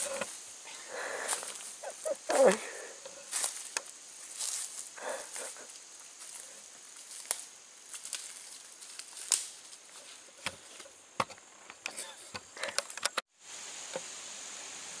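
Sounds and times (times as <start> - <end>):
footsteps rustling through dry leaves: 0.0 - 11.1
high insect hum: 0.0 - 15.0
sharp snaps and clicks: 9.0 - 9.5.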